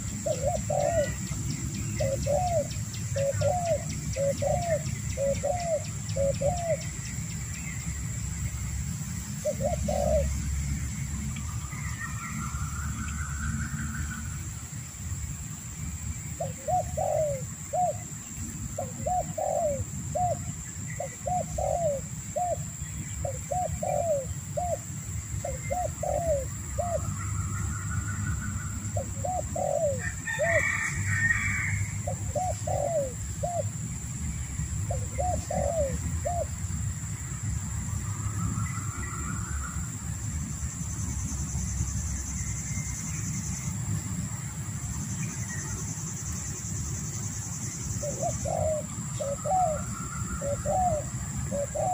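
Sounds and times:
dove cooing: 0.0s - 6.9s, 9.4s - 10.5s, 16.4s - 18.0s, 18.8s - 22.6s, 23.2s - 27.2s, 29.0s - 33.8s, 34.9s - 36.6s, 48.0s - 51.9s.

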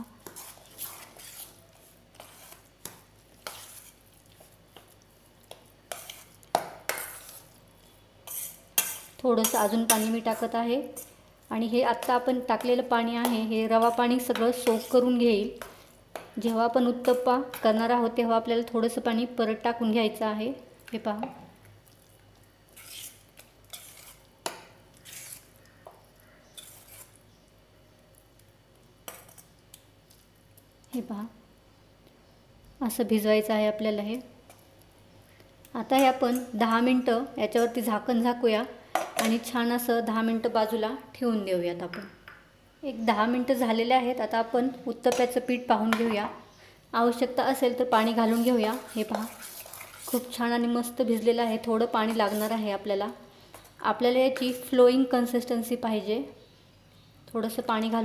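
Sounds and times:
metal spoon scraping a steel bowl: 0.2s - 4.0s, 5.9s - 7.5s, 8.2s - 11.2s, 11.9s - 15.2s, 22.8s - 24.3s, 25.0s - 25.5s, 26.5s - 27.2s.

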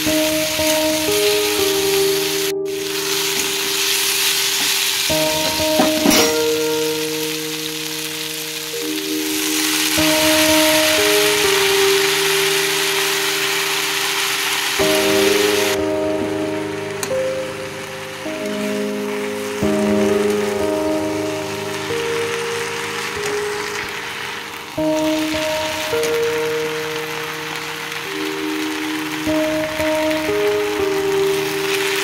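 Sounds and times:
background music with held notes: 0.0s - 32.0s
vegetables sizzling in oil: 0.0s - 32.0s
steel spatula knocking pan: 5.4s - 6.6s.

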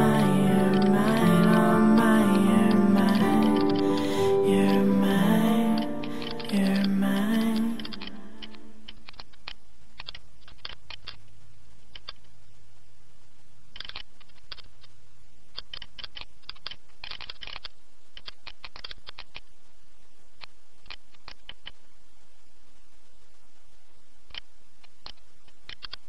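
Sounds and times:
keyboard keys clicking: 0.0s - 11.2s.

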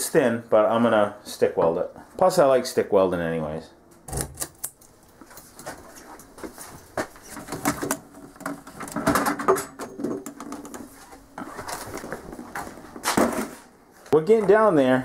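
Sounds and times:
objects clicking and knocking: 7.3s - 10.9s.

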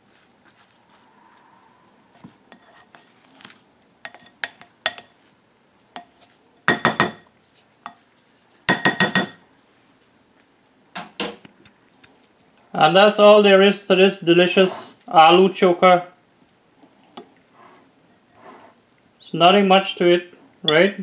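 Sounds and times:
spoon mixing in glass bowl: 2.1s - 3.2s, 4.0s - 5.3s, 5.9s - 7.2s, 7.8s - 8.1s
spoon knocking on bowl: 6.7s - 7.2s, 8.7s - 9.4s.

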